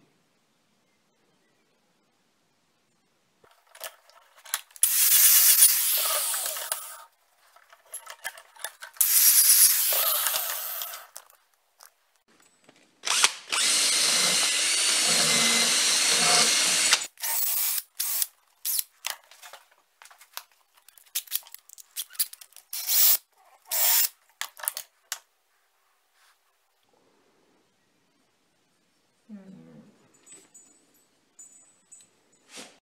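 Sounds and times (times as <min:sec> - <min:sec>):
power drill wire wheel on metal: 0:04.7 - 0:07.0, 0:08.0 - 0:11.3, 0:13.1 - 0:18.8, 0:22.7 - 0:24.1.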